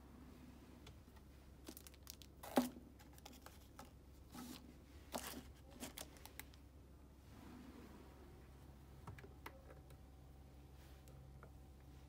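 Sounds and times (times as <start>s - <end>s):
plastic bags crinkling: 1.6s - 3.8s, 5.1s - 6.6s.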